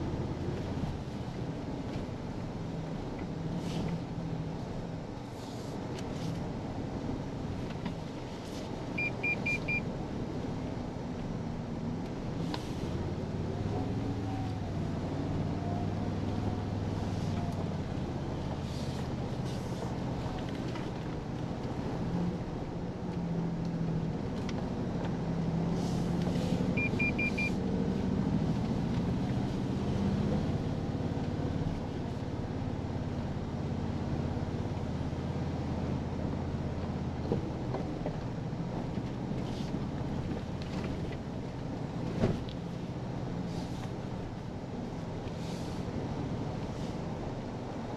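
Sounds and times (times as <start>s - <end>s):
engine low drone: 0.0s - 47.9s
short electronic beeps: 9.0s - 9.8s, 26.7s - 27.6s.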